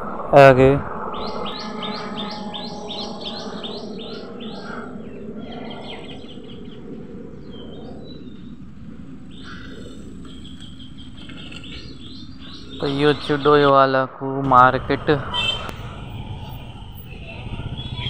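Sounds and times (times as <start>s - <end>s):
small bird chirping: 1.1s - 8.6s, 9.2s - 13.7s, 14.8s - 18.0s
car engine hum: 14.4s - 18.0s.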